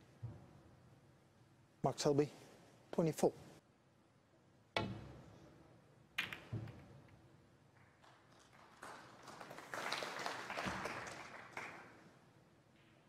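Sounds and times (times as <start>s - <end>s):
snooker balls clicking: 6.2s - 8.3s.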